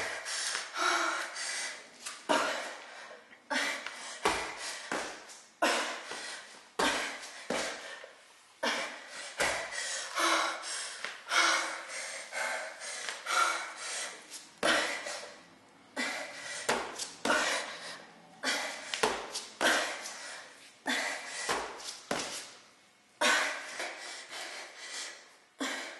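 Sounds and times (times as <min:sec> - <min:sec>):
woman panting: 0:00.0 - 0:22.1, 0:23.2 - 0:25.9.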